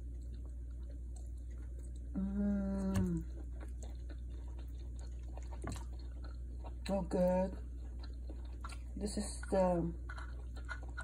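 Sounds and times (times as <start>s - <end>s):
woman humming mmm: 2.2s - 3.3s
chewing mouth clicks: 2.9s - 7.0s, 7.6s - 9.0s, 10.0s - 11.0s.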